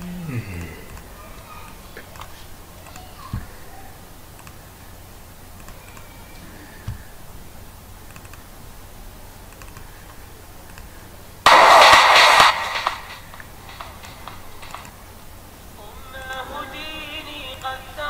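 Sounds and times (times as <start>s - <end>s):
computer mouse clicks: 4.3s - 4.6s, 8.1s - 8.5s, 9.5s - 10.9s
loud music track: 11.5s - 14.9s.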